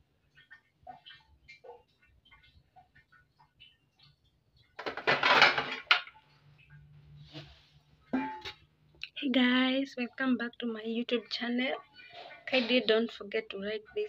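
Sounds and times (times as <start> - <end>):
kitchenware clattering: 4.8 - 6.2, 8.0 - 8.7.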